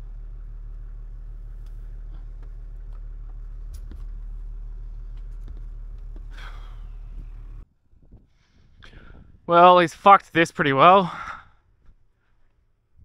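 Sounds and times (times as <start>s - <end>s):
cab rattles and clicks: 0.0s - 7.6s
low engine drone: 0.0s - 7.7s.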